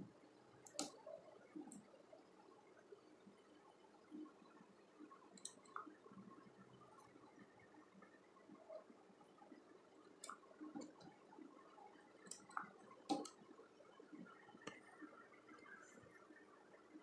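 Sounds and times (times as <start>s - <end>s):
faint clicks and knocks from handling: 0.6s - 2.0s, 5.3s - 6.0s, 10.1s - 16.2s.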